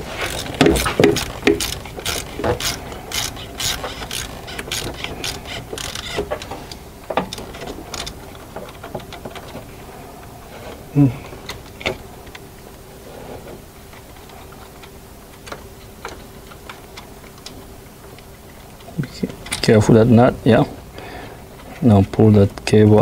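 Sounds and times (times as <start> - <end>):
ratchet wrench clicking: 0.0 - 8.2.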